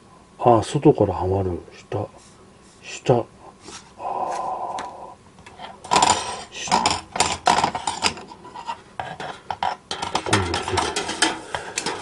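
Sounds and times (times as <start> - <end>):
metal scraping against metal: 5.6 - 12.0.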